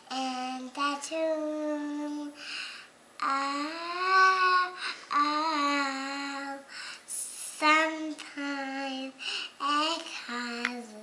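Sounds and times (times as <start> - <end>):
little girl singing: 0.0 - 2.6, 3.2 - 11.0.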